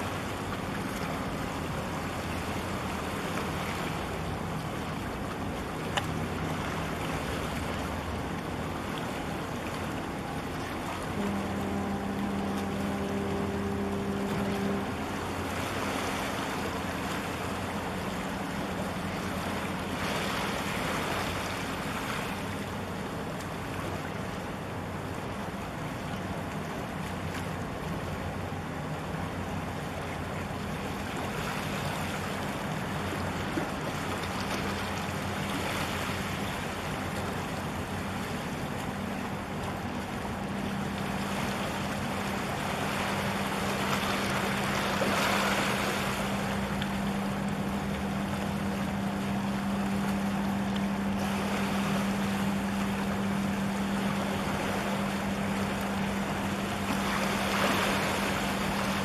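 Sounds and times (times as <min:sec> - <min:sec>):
water washing: 0:00.0 - 0:24.3
ship machinery hum: 0:00.0 - 0:59.0
wind: 0:00.0 - 0:59.0.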